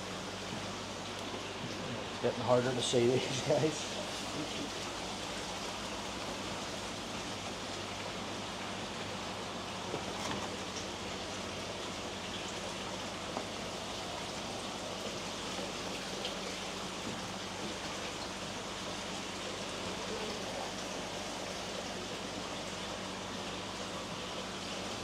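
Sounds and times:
running water rushing: 0.0 - 25.0.

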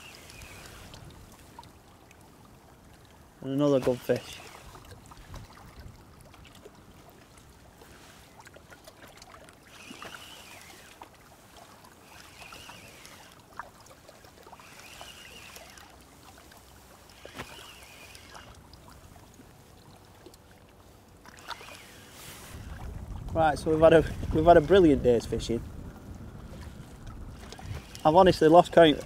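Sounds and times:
sharp reel clicks: 0.0 - 1.0, 3.8 - 4.9, 9.6 - 11.0, 12.1 - 13.5, 14.4 - 16.0, 17.1 - 18.6, 21.4 - 22.4, 27.4 - 29.0
fishing reel winding: 3.8 - 4.9, 9.6 - 11.1, 12.0 - 13.5, 14.4 - 16.0, 17.1 - 18.6, 21.4 - 22.2, 27.4 - 29.0.

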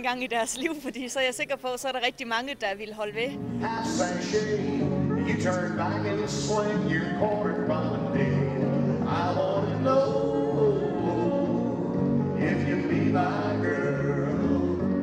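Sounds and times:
country square-dance music: 3.3 - 15.0
man singing a call: 3.6 - 11.4.

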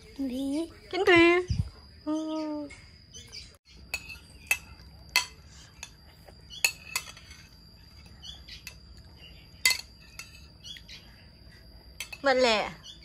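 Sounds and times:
birds chirping: 0.0 - 13.0
metal spoon clinking ceramic bowl: 3.9 - 7.6, 9.6 - 10.6, 12.0 - 12.4.

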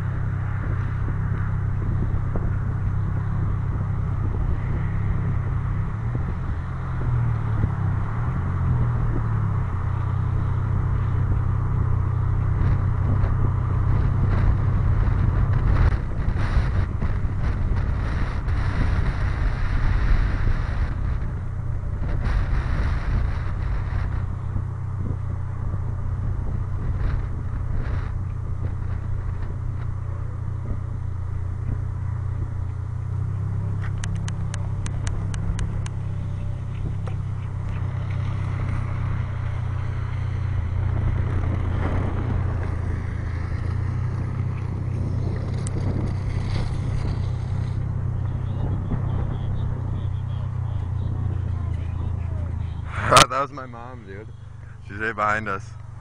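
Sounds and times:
car engine rumble: 0.0 - 56.0
road and air noise: 0.0 - 56.0
tyres on asphalt: 0.0 - 56.0.

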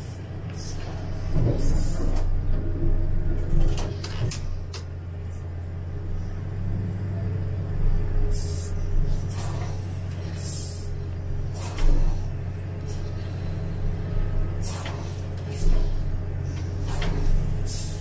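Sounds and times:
excavator engine and hydraulics drone: 0.0 - 18.0
short hisses: 14.6 - 15.8.

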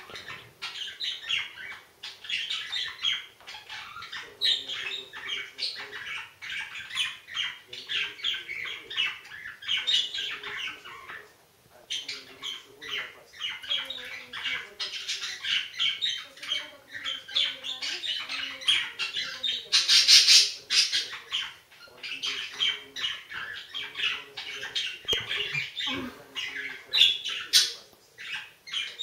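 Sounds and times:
budgerigars chattering: 0.0 - 29.0.

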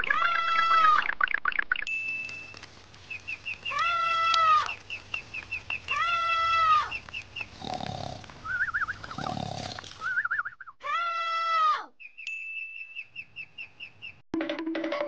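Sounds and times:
baby monkey crying: 0.0 - 1.0
ducklings peeping: 2.5 - 7.8, 12.0 - 14.2.

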